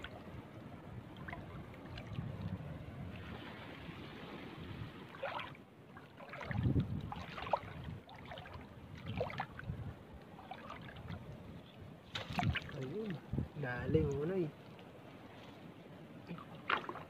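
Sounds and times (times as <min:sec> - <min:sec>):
seawater splashing around wading legs: 0:01.0 - 0:09.7, 0:10.4 - 0:11.4, 0:12.0 - 0:13.2, 0:14.5 - 0:17.0.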